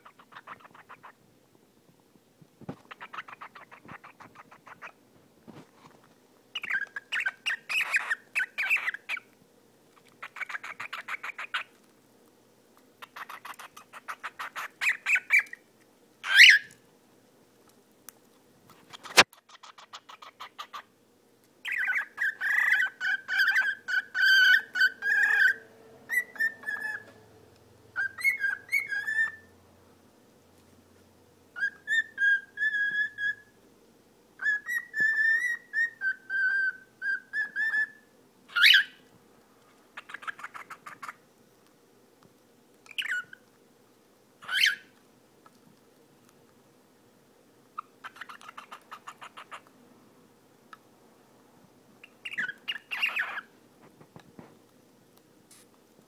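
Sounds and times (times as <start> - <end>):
cockatiel whistling and warbling: 0.0 - 1.2, 2.9 - 5.0, 6.6 - 9.3, 13.0 - 15.6, 16.2 - 16.7, 21.7 - 27.2, 28.0 - 29.5, 31.6 - 33.5, 34.4 - 39.0, 40.0 - 41.2, 42.9 - 43.4, 44.4 - 44.9, 47.8 - 49.6, 52.0 - 53.5.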